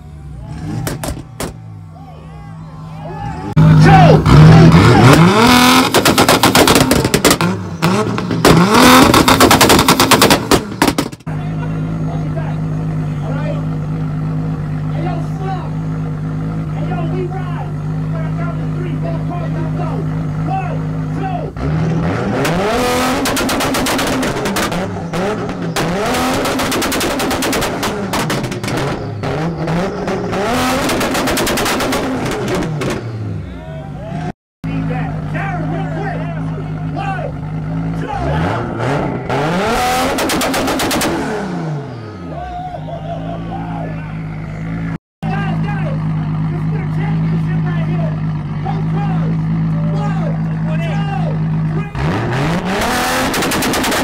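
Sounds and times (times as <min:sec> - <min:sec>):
car engine revving: 0:00.0 - 0:01.9, 0:02.5 - 0:54.0
exhaust pops and bangs: 0:00.8 - 0:01.6, 0:05.0 - 0:11.3, 0:21.8 - 0:33.1, 0:39.9 - 0:41.3, 0:53.1 - 0:54.0.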